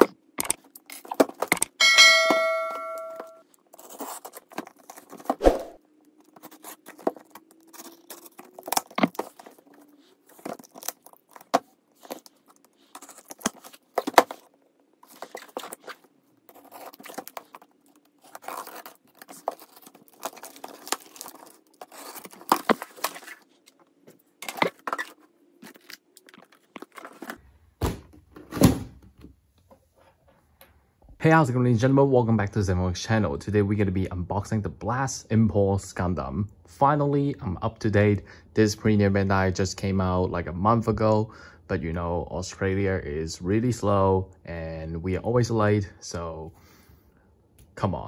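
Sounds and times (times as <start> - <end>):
cardboard scraping and crinkling: 3.7 - 5.4, 6.2 - 27.4
packing tape tearing: 3.7 - 5.4, 6.3 - 23.5.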